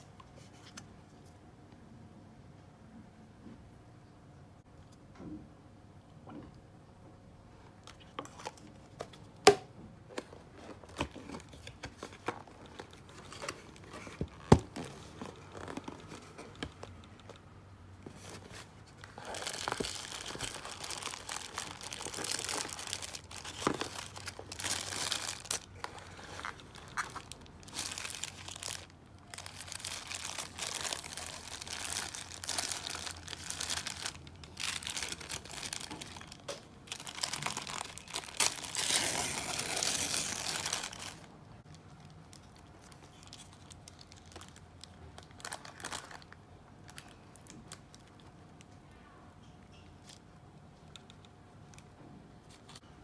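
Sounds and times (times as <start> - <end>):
paper wrapper crinkling and tearing: 18.1 - 48.3.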